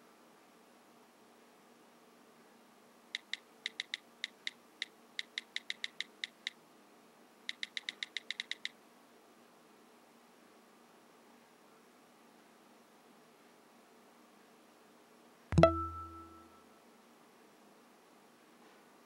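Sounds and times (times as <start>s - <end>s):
faint steady hiss: 0.0s - 19.0s
smartphone keyboard clicks: 3.2s - 6.6s, 7.5s - 8.8s.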